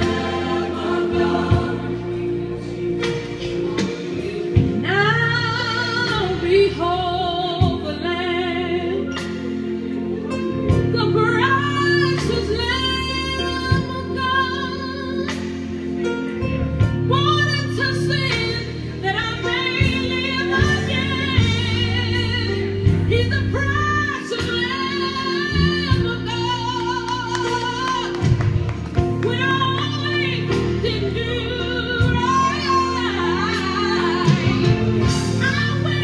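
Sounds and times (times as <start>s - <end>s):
sustained instrumental chords: 0.0s - 36.0s
woman singing with vibrato: 17.1s - 28.4s, 29.2s - 36.0s.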